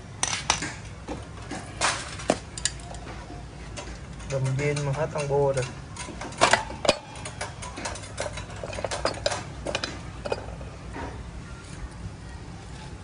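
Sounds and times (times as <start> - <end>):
light metallic clicks and clinks: 3.8 - 10.6.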